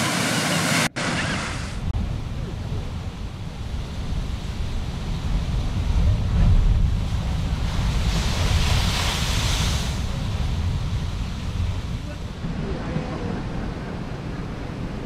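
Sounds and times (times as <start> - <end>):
wind buffeting microphone: 1.7 - 15.0
surf breaking on rocks: 5.0 - 14.6
whitewater hissing rush: 7.2 - 14.3.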